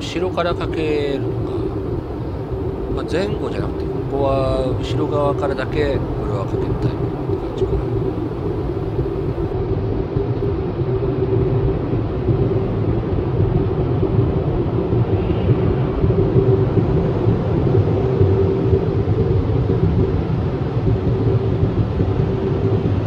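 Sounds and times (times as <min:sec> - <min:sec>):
car wash blower rushing air: 0:00.0 - 0:09.5.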